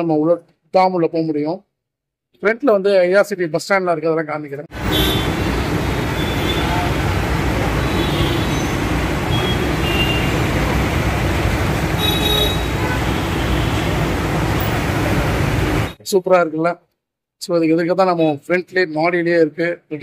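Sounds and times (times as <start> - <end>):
busy road traffic rumble: 4.7 - 16.0.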